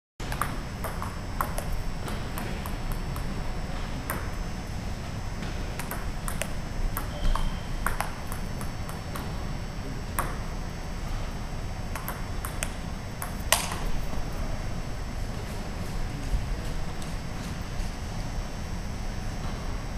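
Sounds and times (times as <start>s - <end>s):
ping-pong ball on paddles and table: 0.2s - 14.4s
steady low hum: 0.2s - 19.9s.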